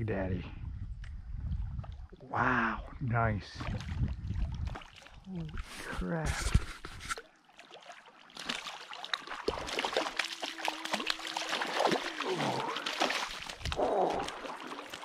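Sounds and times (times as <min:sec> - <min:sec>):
fish splashing in water: 0:03.6 - 0:05.7, 0:07.2 - 0:15.0.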